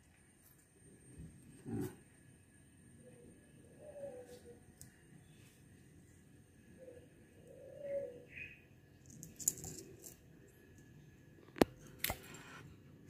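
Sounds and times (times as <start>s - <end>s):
small hardware rustling and clicking: 9.0s - 10.2s.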